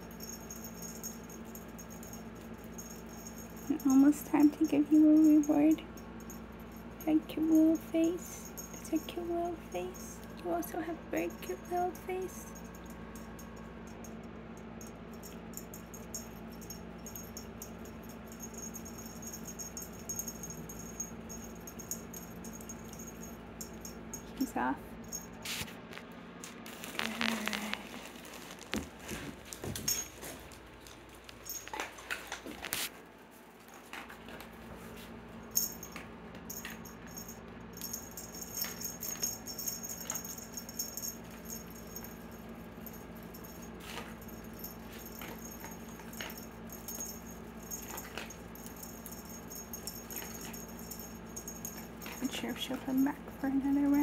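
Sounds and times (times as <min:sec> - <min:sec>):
faint room sound: 0:00.0 - 0:54.0
cat playing with wand toy: 0:14.8 - 0:25.6, 0:35.5 - 0:54.0.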